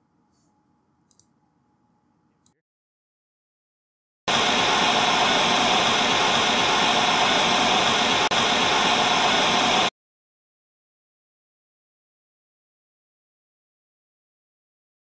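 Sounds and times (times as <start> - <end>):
static white noise hiss: 4.3 - 9.9.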